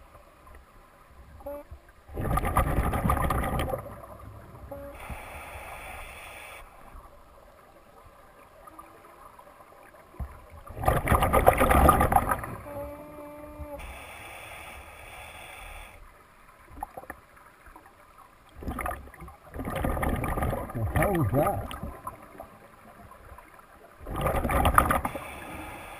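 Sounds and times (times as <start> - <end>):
rush of exhaled bubbles: 2.1 - 4.3, 10.6 - 12.6, 18.6 - 22.6, 24.0 - 25.5
diver inhaling through regulator: 4.7 - 6.8, 13.8 - 16.0, 25.0 - 25.9.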